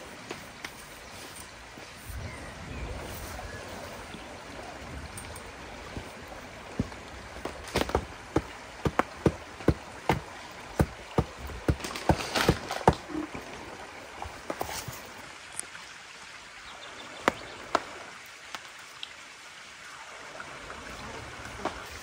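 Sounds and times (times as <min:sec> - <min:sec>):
creek water running: 0:00.0 - 0:22.0
sharp knocks: 0:06.8 - 0:13.0.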